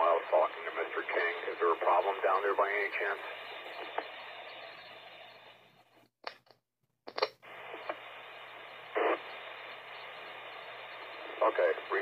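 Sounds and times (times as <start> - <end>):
radio static hiss: 0.0 - 5.7, 7.1 - 12.0
radio squelch bursts: 7.5 - 12.0.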